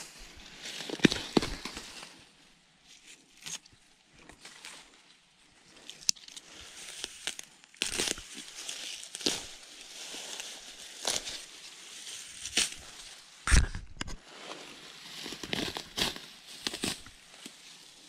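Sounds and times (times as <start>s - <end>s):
grass rustling and tearing: 0.0s - 2.2s, 5.7s - 18.0s
stems snapping: 5.8s - 9.6s, 15.3s - 17.6s.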